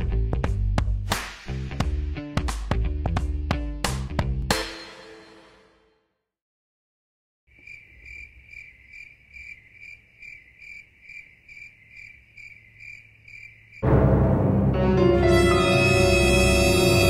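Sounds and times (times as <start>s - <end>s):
cricket chirping: 7.5s - 13.8s.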